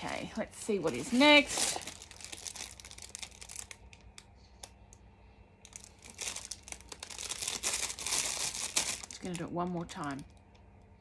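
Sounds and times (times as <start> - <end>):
packaging crinkling: 0.7 - 4.8, 5.6 - 10.6.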